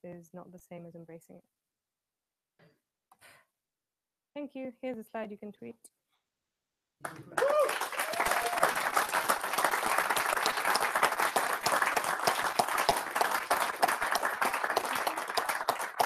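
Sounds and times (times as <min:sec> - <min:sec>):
audience applauding: 0:07.0 - 0:16.0.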